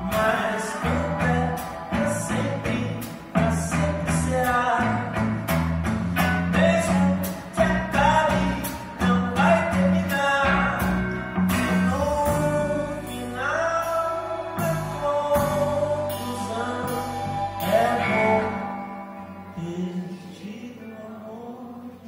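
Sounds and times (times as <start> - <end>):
person singing long notes: 0.0 - 5.2, 11.7 - 22.0
drum kit: 0.0 - 19.5
guitars: 0.0 - 22.0.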